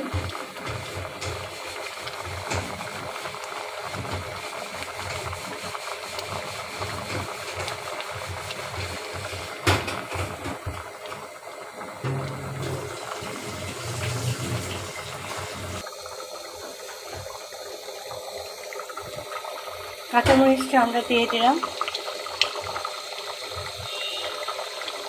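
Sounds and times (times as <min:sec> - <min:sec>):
curry bubbling in pot: 0:00.0 - 0:25.0
sharp knock: 0:12.0 - 0:13.7.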